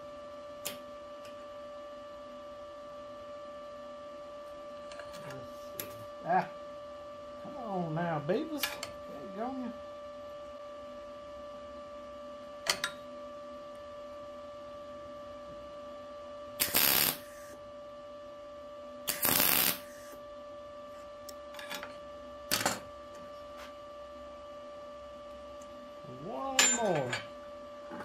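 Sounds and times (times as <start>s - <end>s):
electrical hum: 0.0s - 28.0s
welding bursts: 16.6s - 17.4s, 19.1s - 20.1s.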